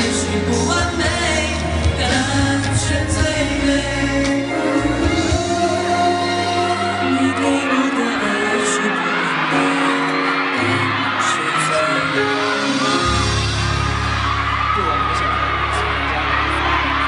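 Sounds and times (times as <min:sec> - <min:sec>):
young man singing: 0:00.0 - 0:13.2
pop backing track: 0:00.0 - 0:17.0.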